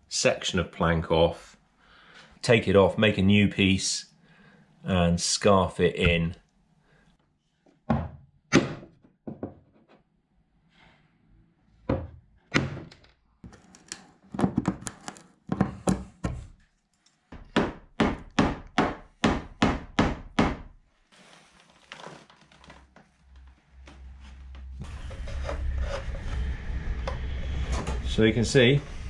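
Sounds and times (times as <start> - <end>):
faint rubbing: 21.0 - 29.0.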